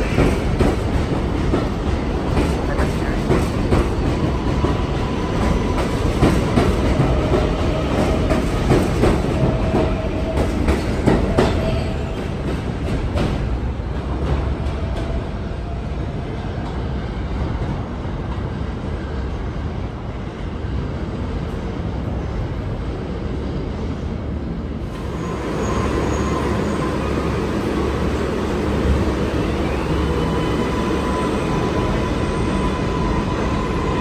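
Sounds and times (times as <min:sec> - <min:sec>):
steady train tone: 0:00.0 - 0:34.0
subway train rumbling: 0:00.0 - 0:34.0
rising train motor whine: 0:24.9 - 0:34.0.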